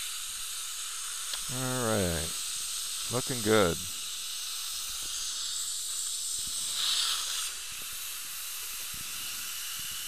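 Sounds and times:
dental suction hiss: 0.0s - 10.0s.

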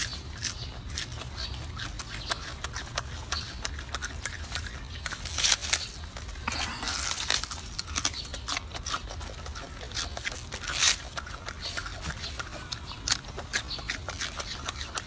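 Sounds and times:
monkey chewing crunchy greens: 0.0s - 15.0s
leaves tearing crackly: 3.6s - 15.0s.

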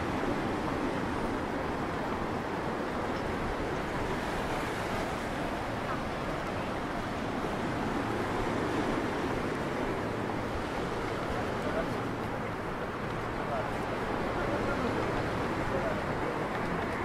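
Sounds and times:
sea surf washing over rocks: 0.0s - 17.0s.

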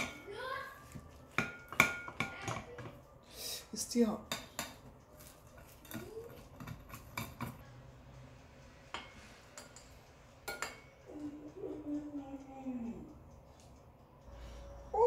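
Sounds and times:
metal spoon scraping glass bowl: 5.2s - 7.6s.

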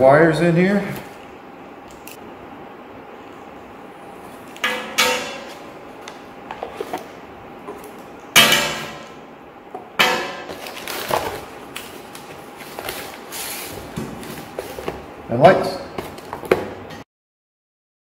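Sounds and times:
connectors clanging on steel table: 4.6s - 5.6s.

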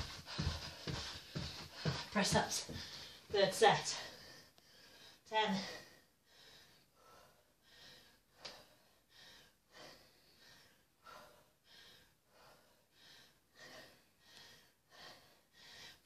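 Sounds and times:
fast heavy breathing: 0.0s - 16.0s.

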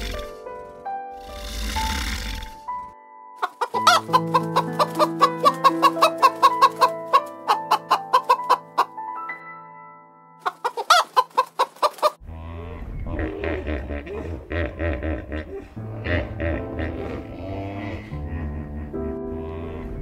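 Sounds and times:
soft background music: 0.0s - 12.2s, 13.2s - 20.0s
animal clucking rapidly: 3.4s - 8.9s, 10.4s - 12.2s.

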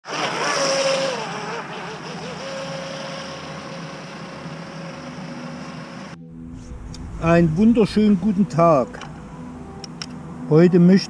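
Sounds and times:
electric boat motor whine: 0.0s - 7.2s.

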